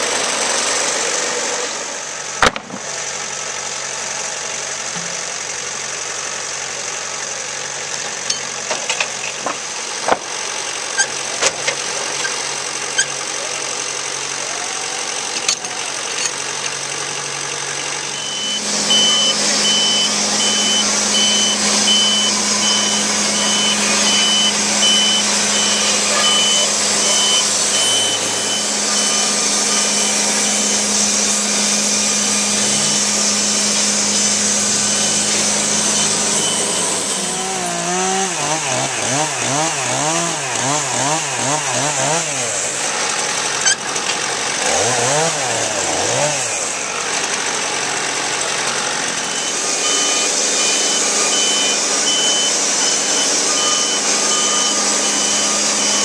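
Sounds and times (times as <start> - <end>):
band sawmill engine running: 0.0 - 56.0
high hiss of sawing: 18.0 - 39.1, 44.4 - 56.0.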